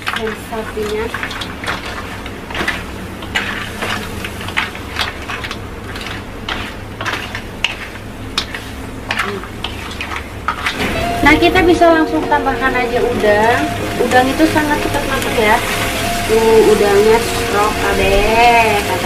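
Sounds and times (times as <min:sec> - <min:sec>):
utensil scraping shells in a wok: 0:00.0 - 0:10.8.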